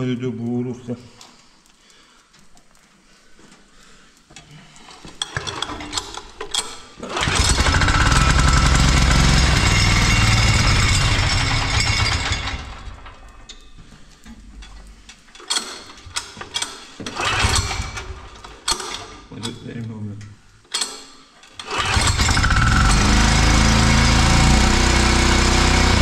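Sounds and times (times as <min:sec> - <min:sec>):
diesel engine running: 0:07.2 - 0:12.8, 0:21.8 - 0:26.0.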